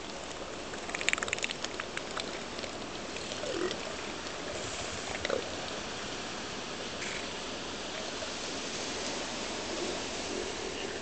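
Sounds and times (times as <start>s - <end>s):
surf and wind hiss: 0.0s - 11.0s.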